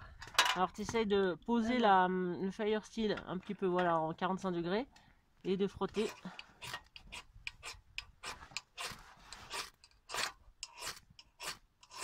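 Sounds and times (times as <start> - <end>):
fire steel scraped with striker: 6.0 - 12.0.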